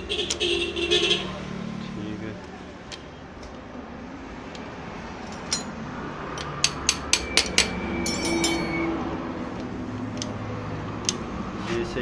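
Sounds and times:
sharp metallic taps: 4.5 - 8.9
metal gear parts clinking: 5.2 - 5.8, 6.4 - 8.9.

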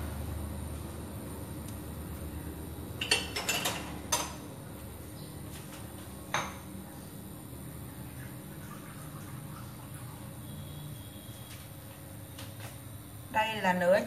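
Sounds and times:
dishes and utensils clinking: 3.0 - 4.4.

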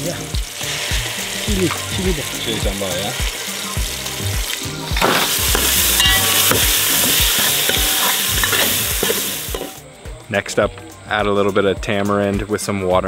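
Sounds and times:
spices sizzling in hot oil: 0.0 - 9.9
metal spatula scraping pot: 5.0 - 9.8.

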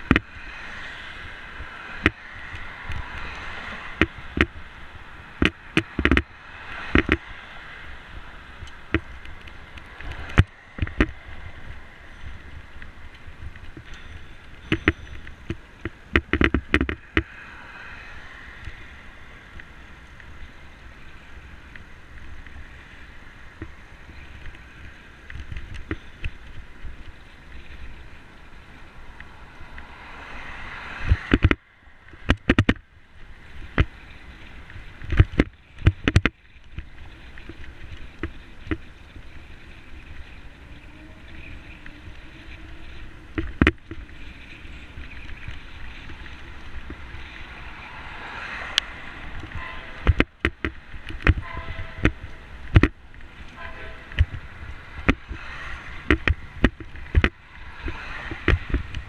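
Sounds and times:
wind rumble and hiss: 0.0 - 59.0
bike knocks and clatters: 13.5 - 17.3, 32.2 - 32.8.

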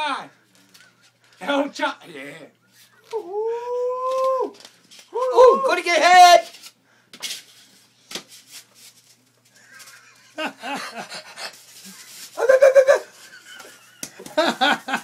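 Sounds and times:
wavering laughter-like calls: 12.4 - 13.2.

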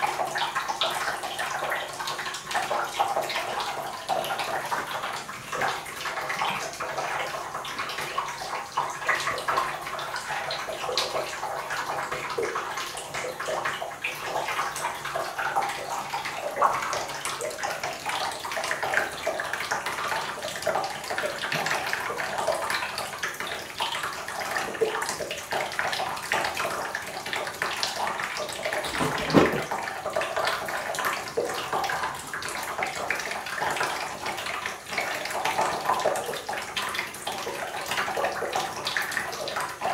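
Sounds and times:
faucet stream splashing in tub: 0.0 - 39.9
thump: 28.9 - 29.7.

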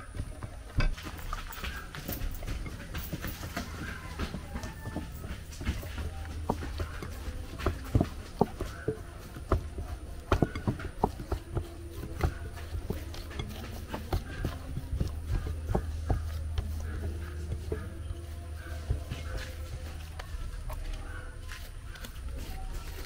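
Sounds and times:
hands kneading dough: 0.0 - 23.0
bowl knocking on wooden board: 3.7 - 17.9.

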